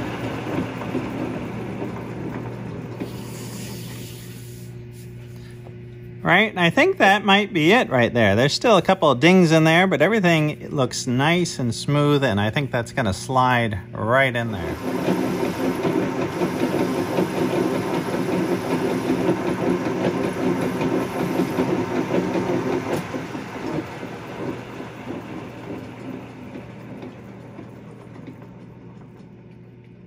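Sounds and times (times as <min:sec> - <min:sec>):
metal lathe running: 0:00.0 - 0:04.6, 0:14.3 - 0:30.0.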